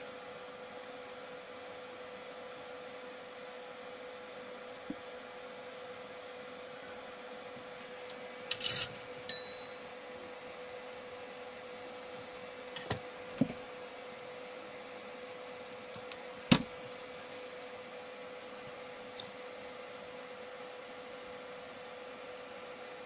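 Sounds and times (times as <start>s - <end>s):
faint steady hum: 0.0s - 23.0s
small metallic clink: 8.5s - 9.8s.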